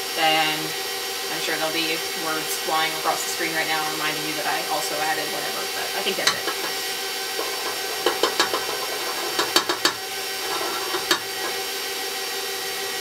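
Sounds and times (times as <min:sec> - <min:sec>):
stand mixer motor humming: 0:00.0 - 0:13.0.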